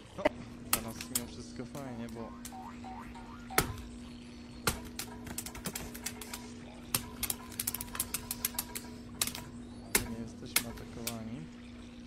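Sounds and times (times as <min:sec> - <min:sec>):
steady low hum: 0:00.0 - 0:12.0
cat claws tapping on glass screen: 0:04.6 - 0:11.2.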